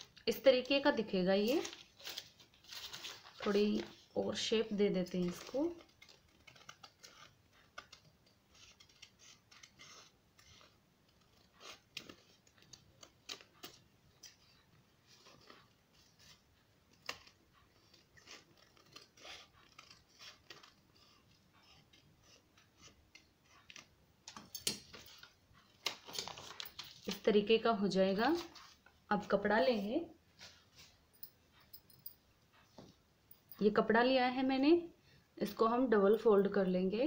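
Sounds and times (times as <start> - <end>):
scissors snipping paper: 5.0 - 14.4, 15.2 - 27.2.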